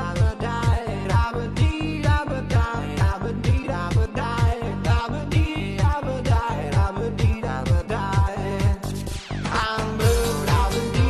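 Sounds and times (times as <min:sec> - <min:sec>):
pop music with kick drum: 0:00.0 - 0:11.0.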